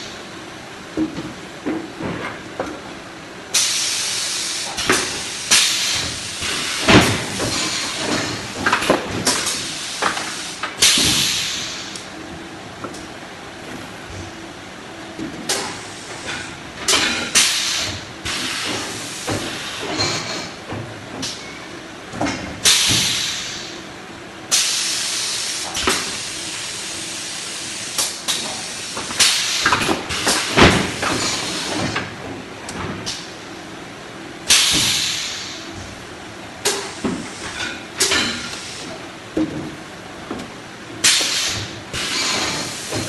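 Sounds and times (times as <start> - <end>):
air hissing bursts: 3.5 - 8.0, 9.3 - 12.0, 17.4 - 19.9, 22.6 - 23.8, 34.5 - 35.7
machine and cardboard tubes clattering: 4.8 - 11.8, 28.2 - 33.3, 36.6 - 43.0.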